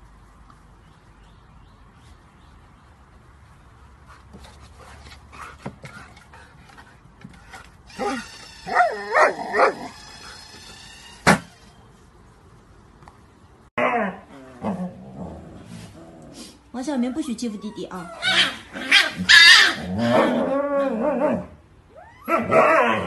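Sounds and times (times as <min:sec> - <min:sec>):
dog whining and yipping: 0:07.9 - 0:11.2, 0:17.0 - 0:23.0
ball launcher motor whine: 0:07.9 - 0:11.8.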